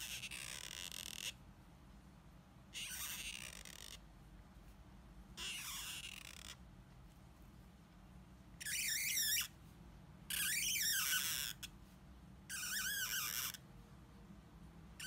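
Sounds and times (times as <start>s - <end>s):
marker squeaking across card: 0.0s - 1.4s, 2.7s - 4.0s, 5.4s - 6.6s, 8.6s - 9.6s, 10.3s - 11.8s, 12.5s - 13.6s.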